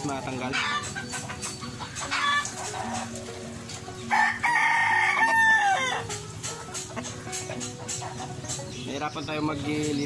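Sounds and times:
rooster clucking: 0.3s - 8.7s
rooster crowing: 4.1s - 6.1s.

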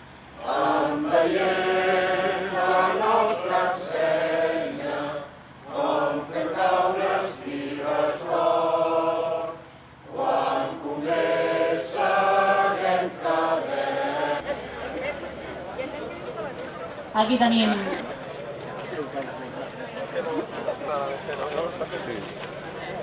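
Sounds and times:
crowd singing in unison: 0.4s - 18.1s.

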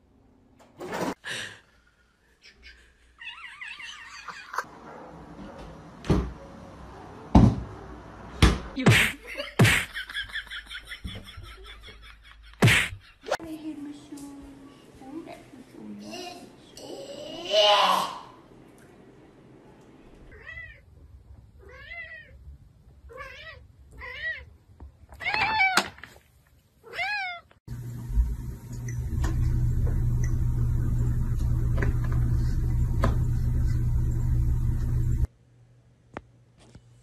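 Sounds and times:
cat meowing: 21.6s - 22.4s, 26.8s - 27.5s
loud low hum: 27.7s - 35.3s.

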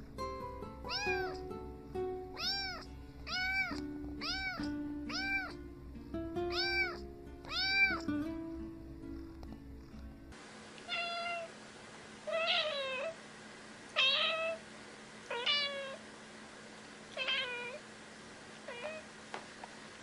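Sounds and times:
cat meowing: 0.9s - 1.5s, 2.4s - 5.6s, 6.5s - 8.1s, 10.9s - 11.5s, 12.3s - 13.2s, 14.0s - 14.6s, 15.3s - 16.0s, 17.2s - 17.8s, 18.7s - 19.1s.

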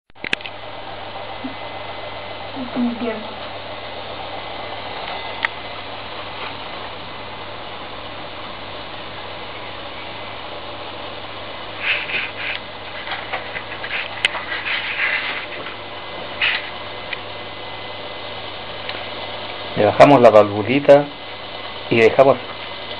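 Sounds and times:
steam hissing: 0.6s - 22.9s
crackly spurts: 11.3s - 20.0s.

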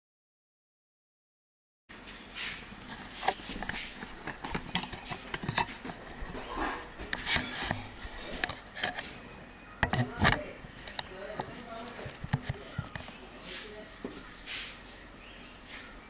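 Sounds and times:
rustling: 2.4s - 9.3s.

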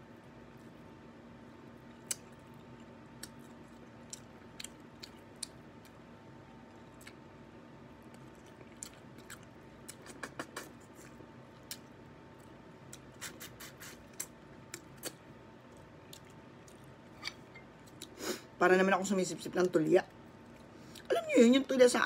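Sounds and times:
faint steady hum: 0.0s - 22.0s
chewing: 1.8s - 6.0s, 6.7s - 7.2s, 8.0s - 18.2s.

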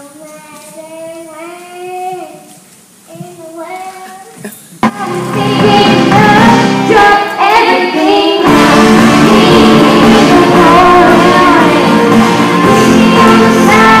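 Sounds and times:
girl singing through microphone: 0.0s - 14.0s
backing track with bass and drums: 4.8s - 7.0s, 8.5s - 14.0s.

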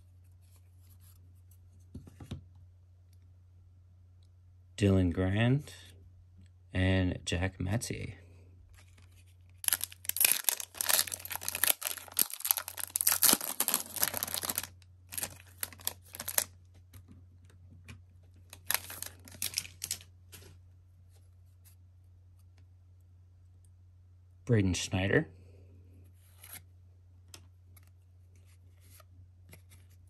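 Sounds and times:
wrapper tearing and crinkling: 9.6s - 16.5s, 18.5s - 20.1s.

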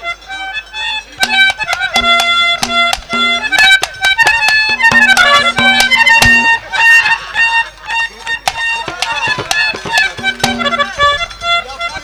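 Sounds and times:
sustained melody instrument: 0.6s - 12.0s
sharp percussion strikes: 1.2s - 6.7s, 8.5s - 11.3s.

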